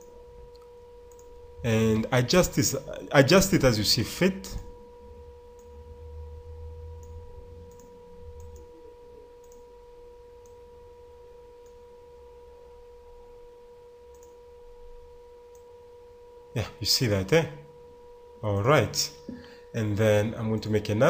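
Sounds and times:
steady whining tone: 0.0s - 21.0s
low rumble: 4.6s - 9.3s.

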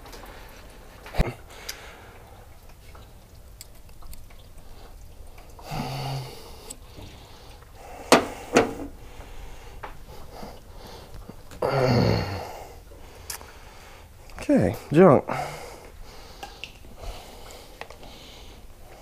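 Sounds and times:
person grunting with effort: 11.6s - 12.5s.

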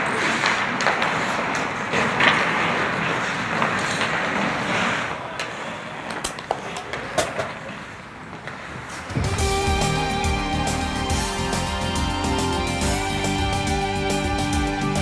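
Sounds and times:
skates scraping on ice: 0.0s - 9.4s.

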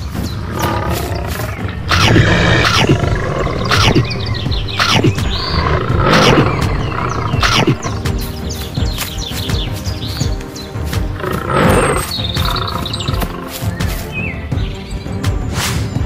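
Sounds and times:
big cat roaring and growling: 0.4s - 8.0s, 11.2s - 13.2s.

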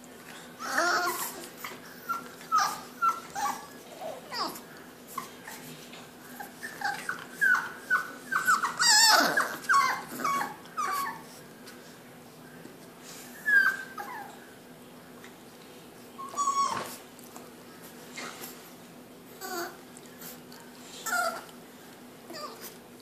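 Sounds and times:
puppies whimpering and yipping: 0.6s - 11.4s, 13.3s - 14.4s, 16.2s - 17.0s, 21.0s - 21.5s.

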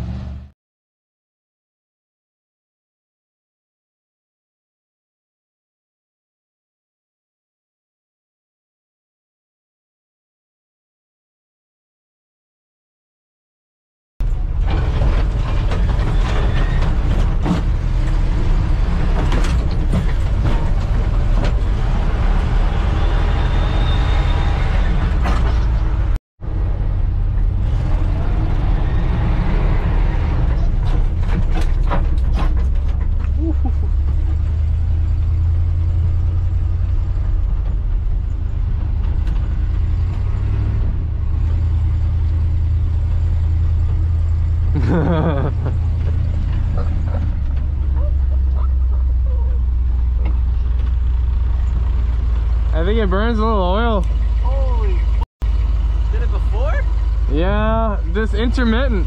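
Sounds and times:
cab rattling and creaking: 14.2s - 22.9s, 24.6s - 26.2s, 30.2s - 55.2s
pickup engine running hard: 41.2s - 59.0s.

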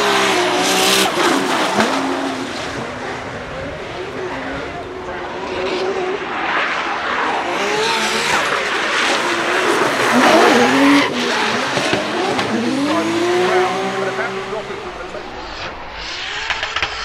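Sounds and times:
car engine revving hard: 0.0s - 3.2s, 7.2s - 17.0s.

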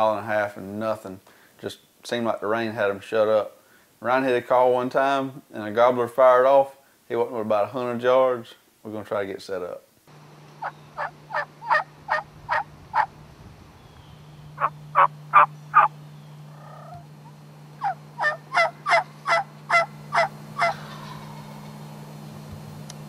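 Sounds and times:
steady low hum: 10.0s - 23.0s
wild turkey yelping: 10.6s - 13.2s, 13.9s - 17.1s, 17.8s - 22.0s.

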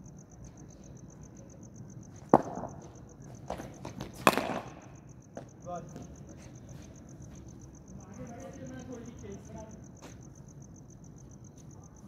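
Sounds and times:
insects chirping: 0.0s - 12.0s
cricket ball struck by bat: 2.3s - 2.9s, 3.5s - 6.1s.

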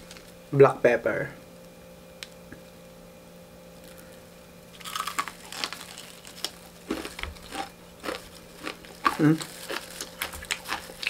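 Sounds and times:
fried chicken crunching and crackling: 4.7s - 11.0s.

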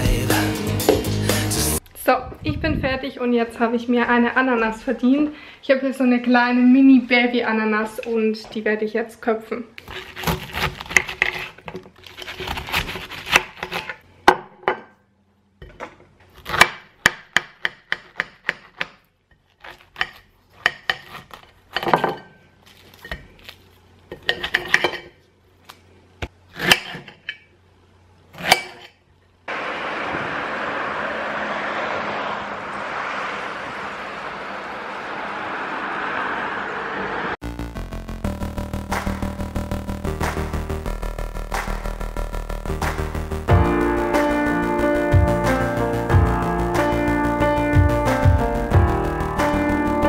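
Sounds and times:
knife crunching through pineapple rind: 9.8s - 14.0s, 17.8s - 21.9s
steady rushing noise: 29.5s - 37.7s.

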